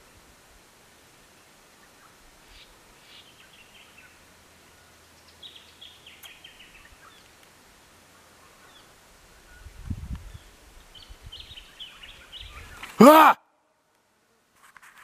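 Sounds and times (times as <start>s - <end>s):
faint outdoor background: 0.0s - 15.0s
small bird singing: 1.8s - 7.4s, 8.2s - 13.0s.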